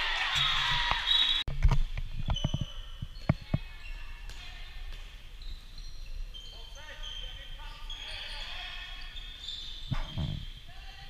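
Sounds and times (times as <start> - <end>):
loud voices: 0.0 - 1.4
shoe squeaks on court: 2.1 - 10.6.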